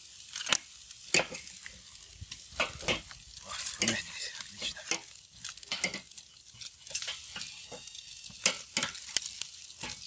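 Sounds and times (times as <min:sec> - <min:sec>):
meat sizzling on grill: 0:00.0 - 0:10.0
metal tongs scraping grate: 0:05.6 - 0:10.0.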